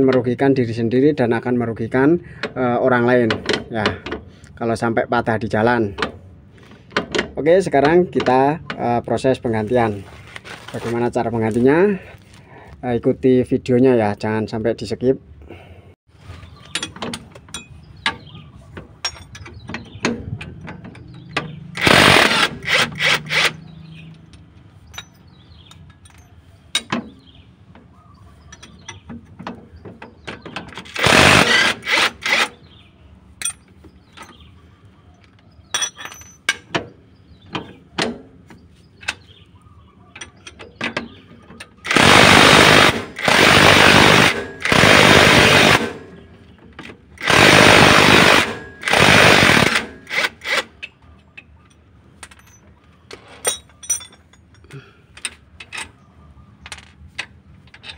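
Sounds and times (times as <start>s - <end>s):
metallic clinks of tools: 24.0s - 26.9s, 35.7s - 36.6s, 51.7s - 52.7s, 53.4s - 55.9s.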